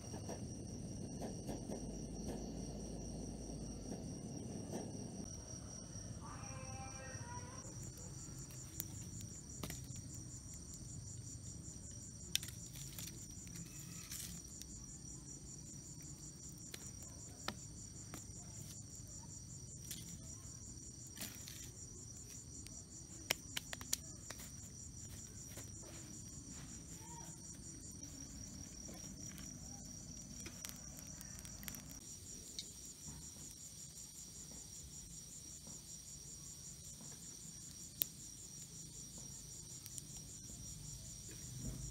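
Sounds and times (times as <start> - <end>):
crickets trilling: 0.0 - 41.9
sharp clicks and snaps: 23.2 - 24.4.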